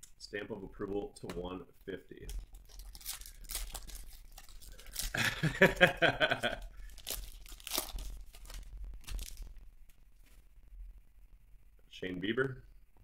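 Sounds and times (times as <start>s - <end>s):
foil wrapper tearing: 2.3s - 9.6s
foil wrapper crinkling: 2.3s - 10.4s.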